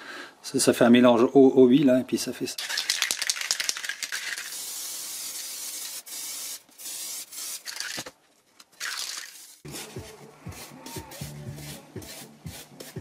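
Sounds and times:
spray paint can hissing: 0:02.6 - 0:08.1, 0:08.8 - 0:13.0.

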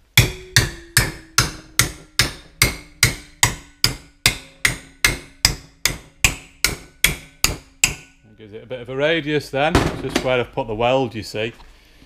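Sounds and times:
hammer striking metal: 0:00.0 - 0:08.3.

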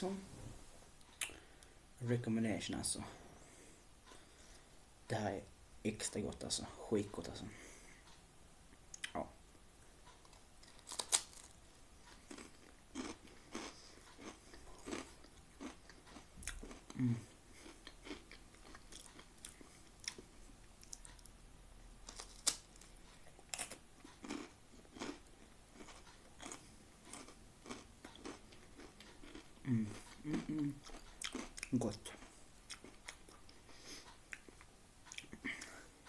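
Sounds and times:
crispbread crunching: 0:10.6 - 0:11.6, 0:12.3 - 0:20.2, 0:22.0 - 0:33.4.

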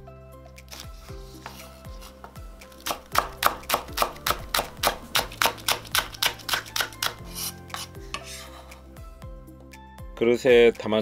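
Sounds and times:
knife chopping on wooden board: 0:02.2 - 0:08.6.

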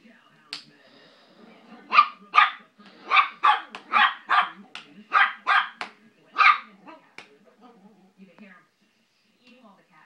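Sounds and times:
small dog yapping: 0:01.9 - 0:05.8.

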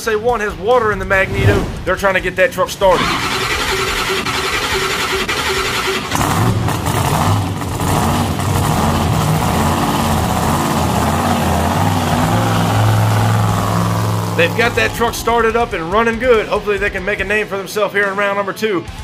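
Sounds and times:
truck engine revving: 0:02.8 - 0:16.4
engine starter cranking: 0:02.9 - 0:07.0.

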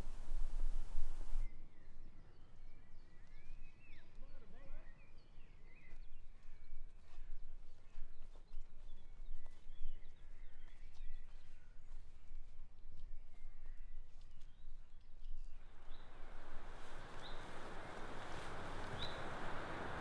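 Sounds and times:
steady hiss: 0:00.0 - 0:01.4, 0:15.6 - 0:20.0
faint birdsong: 0:00.0 - 0:12.3, 0:13.0 - 0:20.0.

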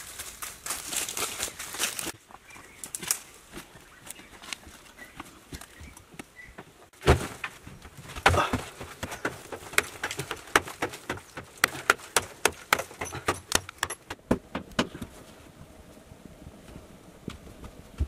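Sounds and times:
digging tool knocking dry earth: 0:08.2 - 0:15.1.

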